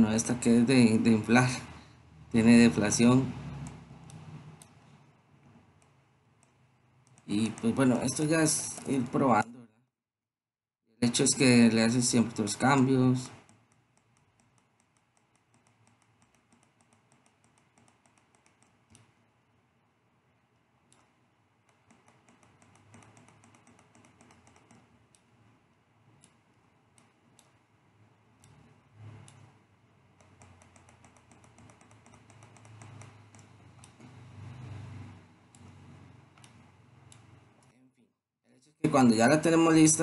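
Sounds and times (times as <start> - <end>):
mouse and keyboard clicking: 5.8 - 8.0, 13.3 - 19.2, 20.9 - 25.3, 30.2 - 34.6, 35.5 - 37.7.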